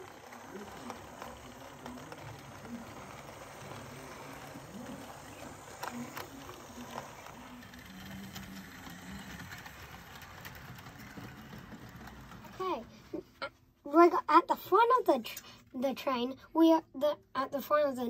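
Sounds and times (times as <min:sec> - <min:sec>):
model train motor humming: 0:00.0 - 0:12.9
wagons rolling on rails: 0:00.0 - 0:13.1.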